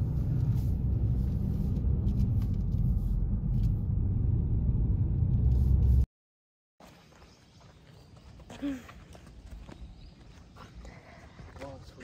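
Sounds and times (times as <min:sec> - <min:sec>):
car engine and road noise: 0:00.0 - 0:06.1.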